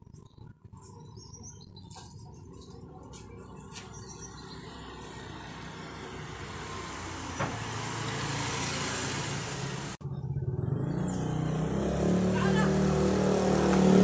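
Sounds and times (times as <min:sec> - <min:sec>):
motor scooter engine passing: 0:04.4 - 0:14.0.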